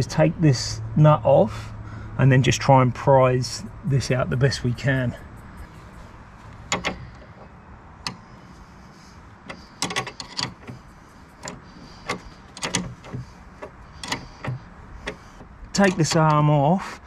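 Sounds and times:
metal tools clicking and clinking: 9.5s - 15.2s.

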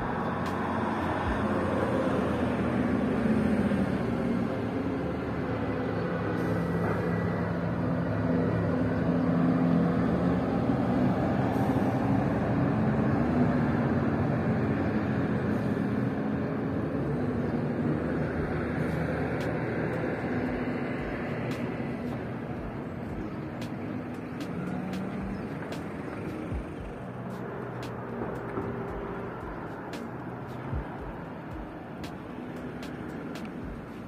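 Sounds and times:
vehicle engine running: 18.2s - 34.0s.

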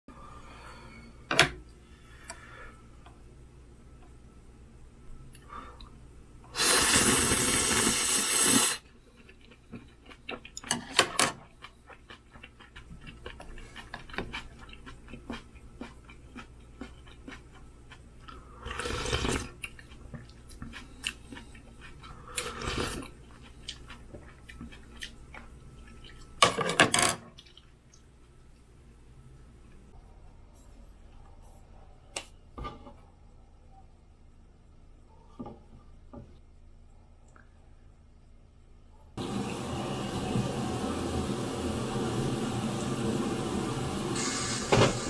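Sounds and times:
person slurping noodles: 6.6s - 8.8s, 18.6s - 19.5s.

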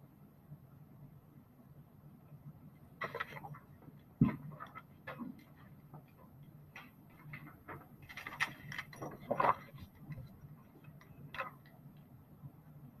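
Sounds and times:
faint low hum: 0.0s - 13.0s
paper rustling: 3.0s - 3.6s, 7.4s - 10.3s
paper handling clicks and taps: 6.7s - 11.7s.

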